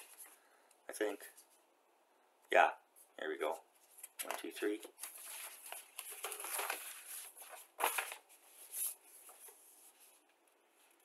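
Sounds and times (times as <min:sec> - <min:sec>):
paper pages rustling: 0:03.8 - 0:11.0.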